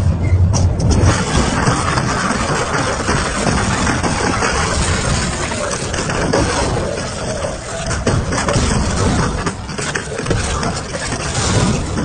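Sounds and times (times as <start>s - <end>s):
shredder grinding metal: 1.0s - 12.0s.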